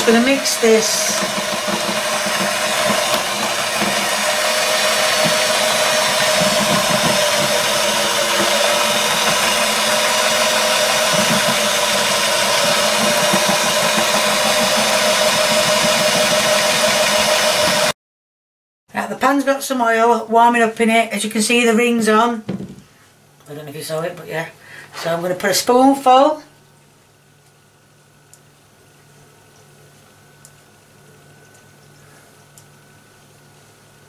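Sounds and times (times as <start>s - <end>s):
electric mixer whisking batter: 0.0s - 18.0s.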